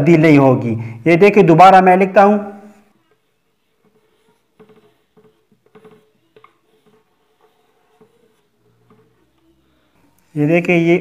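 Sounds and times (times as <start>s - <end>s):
chalk scratching on a blackboard: 2.6s - 10.6s.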